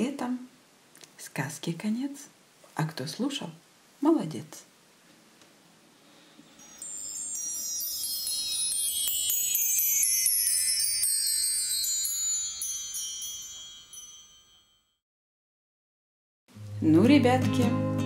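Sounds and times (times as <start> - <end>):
chimes tinkling: 6.4 - 15.0.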